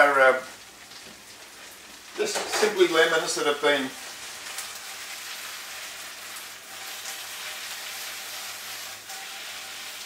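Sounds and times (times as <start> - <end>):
food sizzling in frying pan: 0.0 - 10.0.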